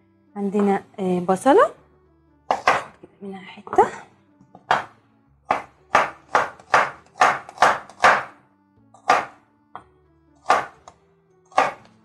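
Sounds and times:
quiet background music: 0:00.0 - 0:12.0
knife chopping on wooden board: 0:02.5 - 0:03.0, 0:04.6 - 0:08.4, 0:09.0 - 0:12.0.

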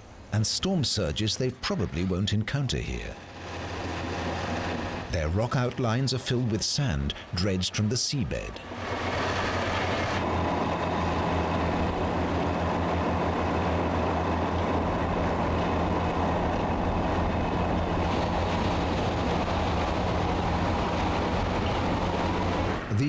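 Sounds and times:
heavy diesel machinery drone: 0:03.2 - 0:05.4, 0:08.6 - 0:23.0
water and sand slurry rushing: 0:16.9 - 0:22.9.

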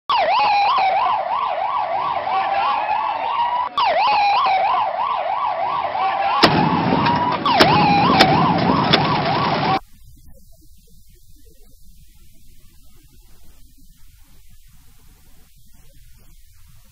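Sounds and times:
emergency siren wailing: 0:00.1 - 0:09.8
loud noisy rush: 0:05.6 - 0:09.8
sharp bangs: 0:06.0 - 0:09.8.

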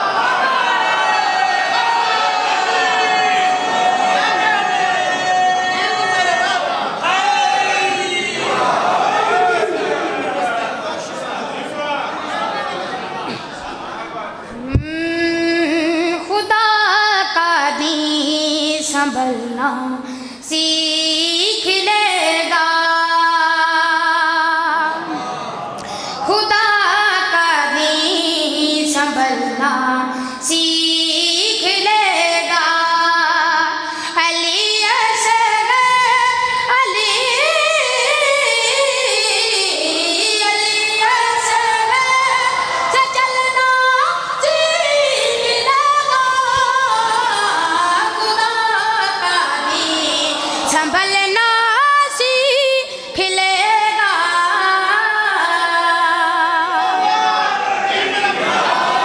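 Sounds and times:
person singing unaccompanied: 0:14.6 - 0:25.0, 0:26.3 - 0:57.1.

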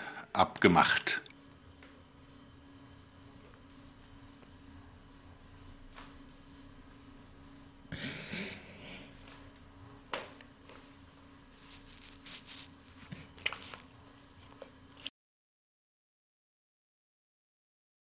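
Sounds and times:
fingers rubbing stubbly skin: 0:11.5 - 0:13.8.

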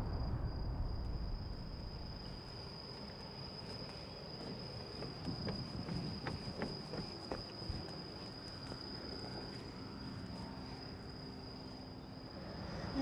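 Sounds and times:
low outdoor rumble: 0:00.0 - 0:04.3
insects trilling: 0:00.0 - 0:13.0.

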